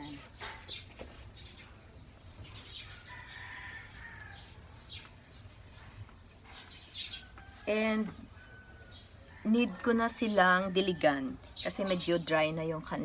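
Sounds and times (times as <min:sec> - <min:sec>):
rooster crowing: 0:02.9 - 0:04.6.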